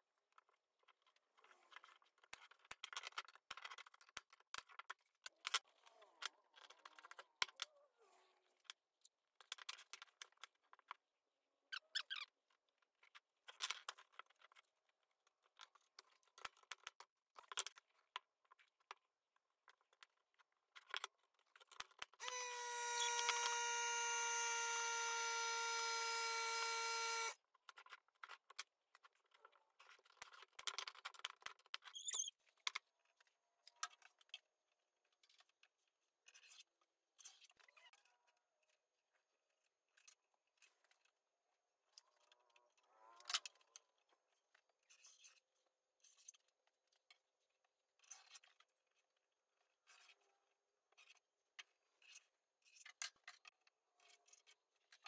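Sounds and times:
tape measure clicks: 0:22.2 - 0:27.4.

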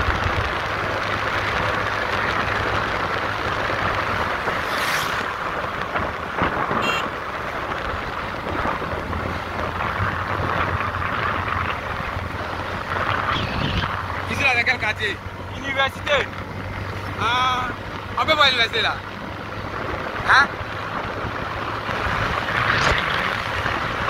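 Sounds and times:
wind rushing over microphone: 0:00.0 - 0:18.2, 0:18.9 - 0:24.0
motorcycle engine hum: 0:00.0 - 0:24.0.

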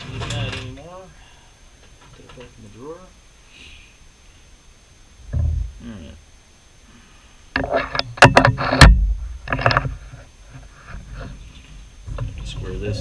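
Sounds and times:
metal clicks and clanks: 0:00.0 - 0:00.9, 0:07.6 - 0:09.9.

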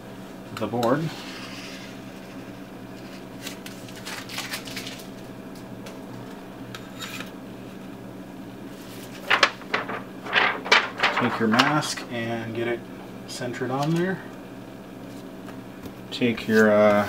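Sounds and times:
steady low hum: 0:00.0 - 0:17.0
plastic film rustling: 0:03.4 - 0:05.6, 0:08.8 - 0:12.0.

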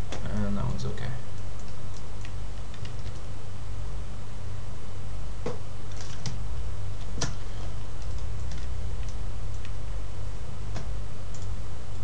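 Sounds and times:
low electrical hum: 0:00.0 - 0:12.0
computer keyboard and mouse clicks: 0:01.4 - 0:03.2, 0:05.9 - 0:06.4, 0:08.0 - 0:09.8, 0:10.8 - 0:11.5.

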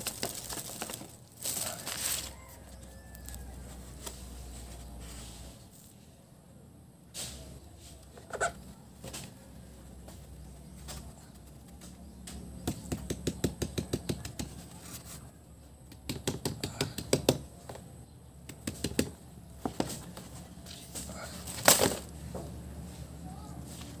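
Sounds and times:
paper crinkling: 0:00.0 - 0:04.8.

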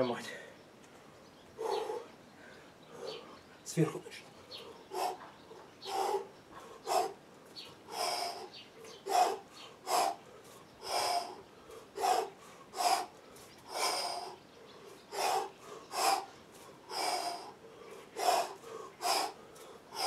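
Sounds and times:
man breathing hard in puffs: 0:01.6 - 0:03.4, 0:04.4 - 0:05.2, 0:05.8 - 0:07.2, 0:07.8 - 0:20.0.

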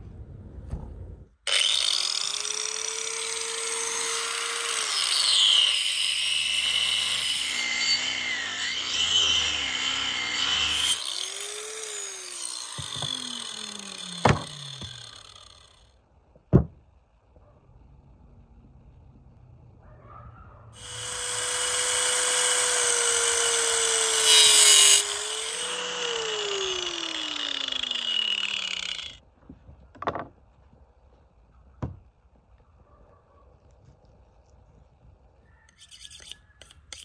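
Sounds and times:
angle grinder cutting bone: 0:01.5 - 0:15.9, 0:20.8 - 0:29.2
grinder winding down: 0:01.5 - 0:15.9, 0:20.8 - 0:29.2
sharp knocks: 0:14.2 - 0:15.0.

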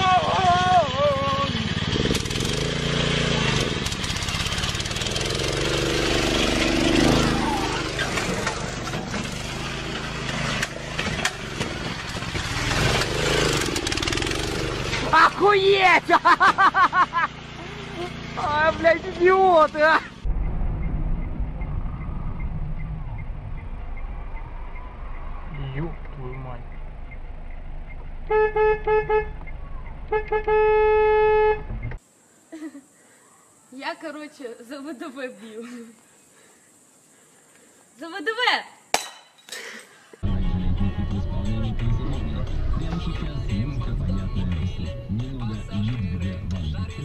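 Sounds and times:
low rumble of car driving: 0:00.0 - 0:32.0, 0:40.2 - 0:47.0
small engine running: 0:00.3 - 0:19.6
car horn toots: 0:28.2 - 0:29.4, 0:30.1 - 0:31.8.

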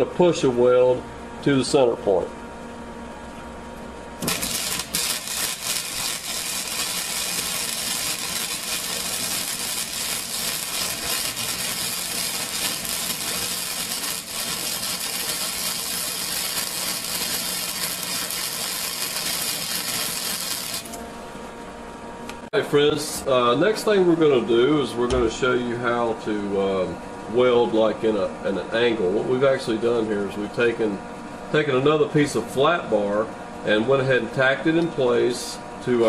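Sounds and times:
welding arc crackling: 0:04.2 - 0:21.0.

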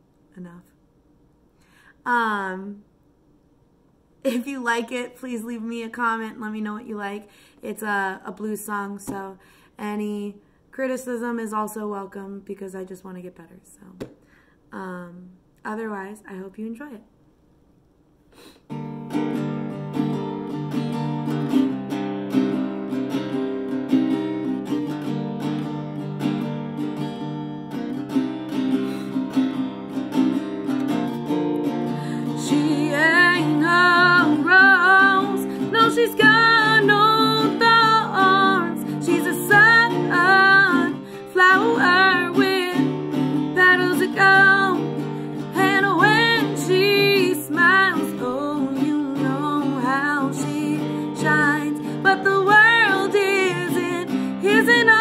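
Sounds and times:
acoustic guitar strumming: 0:18.7 - 0:55.0
woman singing: 0:31.9 - 0:55.0.

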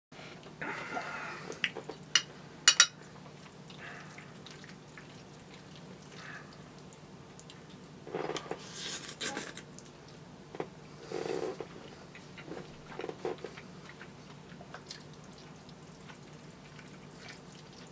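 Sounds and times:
fork clinking against dish: 0:02.2 - 0:03.0.

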